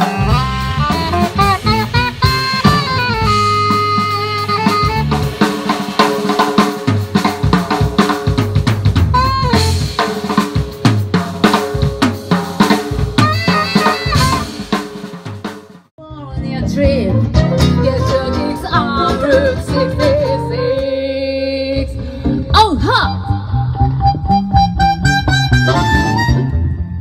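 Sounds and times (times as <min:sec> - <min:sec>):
saxophone: 0:00.0 - 0:06.0, 0:09.1 - 0:10.3, 0:13.2 - 0:14.9, 0:17.3 - 0:21.9, 0:23.0 - 0:27.0
electric bass: 0:00.0 - 0:14.8, 0:16.0 - 0:27.0
electric guitar: 0:00.0 - 0:15.2, 0:16.0 - 0:27.0
drum kit beat: 0:00.0 - 0:21.0, 0:21.8 - 0:26.7.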